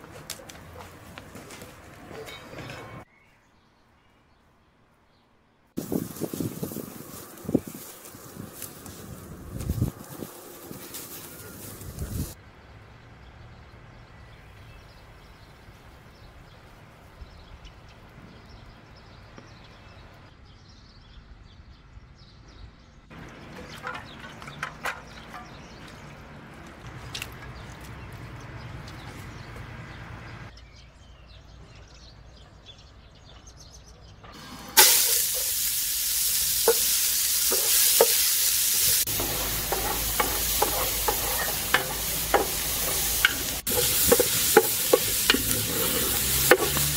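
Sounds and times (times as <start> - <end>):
meat sizzling in hot fat: 34.4 - 46.9
stirring clicks and scrapes: 38.8 - 46.9.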